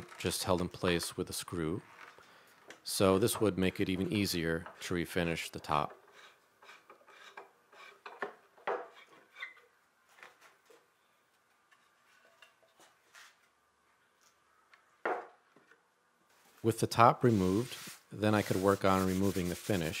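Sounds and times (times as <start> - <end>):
wooden knock: 15.0 - 15.3.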